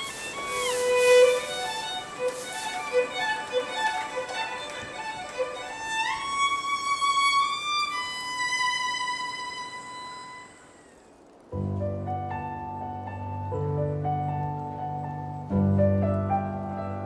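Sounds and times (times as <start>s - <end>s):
solo violin melody: 0.0s - 12.0s.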